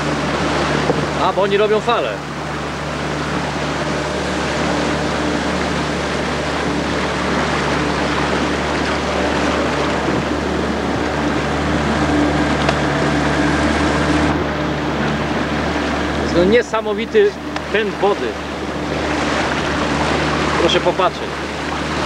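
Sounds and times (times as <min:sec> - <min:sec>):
fast-flowing water rushing: 0:00.0 - 0:22.0
motorboat engine humming: 0:00.0 - 0:22.0.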